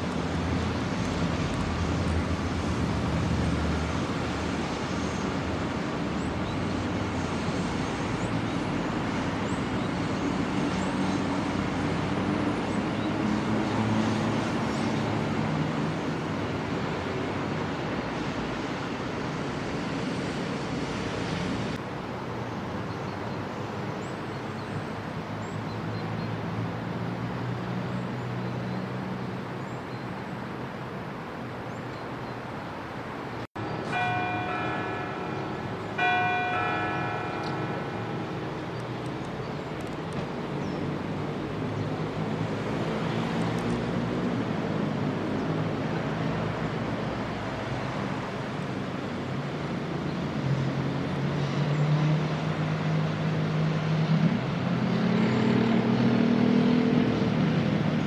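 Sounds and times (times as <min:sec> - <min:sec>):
church bell strikes: 0:33.7 - 0:38.8.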